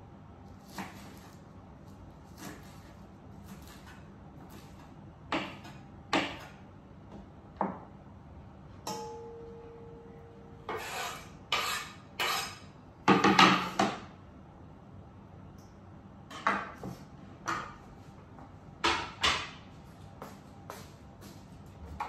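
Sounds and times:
knife scraping chopped chives: 0:00.5 - 0:05.8, 0:10.7 - 0:12.6.

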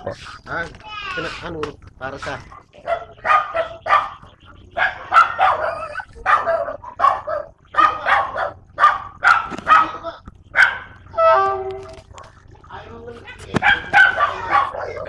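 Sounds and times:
dog barking: 0:02.8 - 0:11.0, 0:13.6 - 0:15.0.

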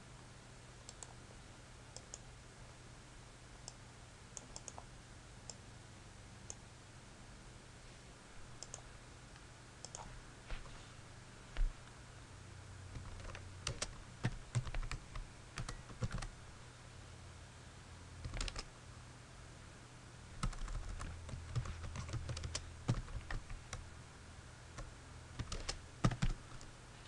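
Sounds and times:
faint low hum: 0:00.0 - 0:27.0
typing on keyboard: 0:13.0 - 0:16.3, 0:18.2 - 0:18.7, 0:20.4 - 0:23.8, 0:24.8 - 0:26.7.

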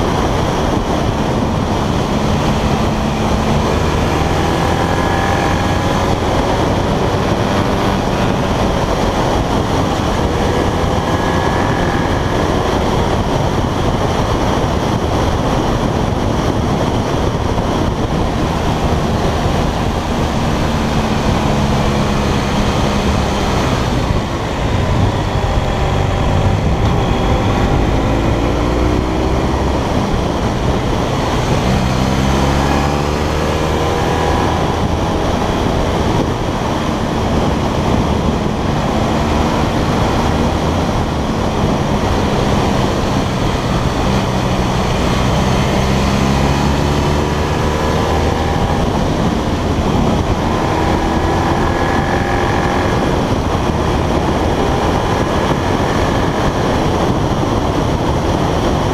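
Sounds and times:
motorcycle engine running: 0:00.0 - 0:58.9
wind and road noise: 0:00.0 - 0:58.9.

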